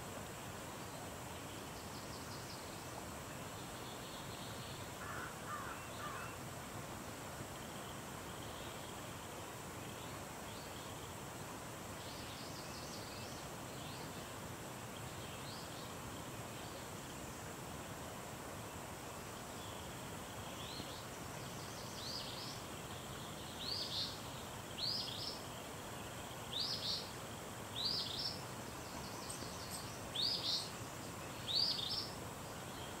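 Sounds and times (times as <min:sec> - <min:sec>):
steady background hiss: 0:00.0 - 0:33.0
bird chirping: 0:27.8 - 0:33.0.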